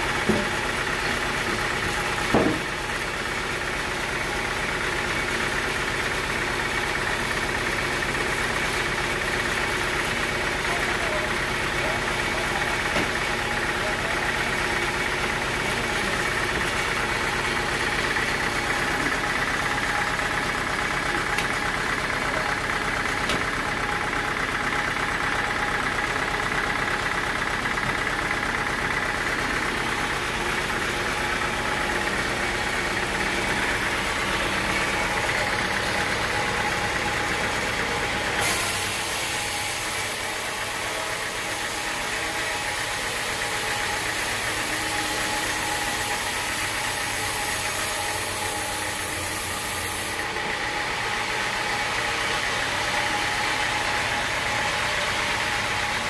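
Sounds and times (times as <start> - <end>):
band saw cutting log: 11.4 - 24.4, 27.8 - 56.0.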